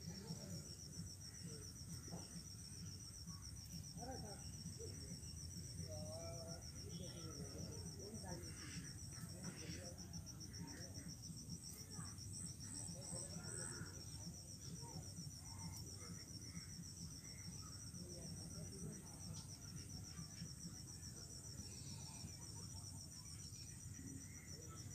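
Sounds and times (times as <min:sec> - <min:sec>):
insect trill: 0:00.0 - 0:24.9.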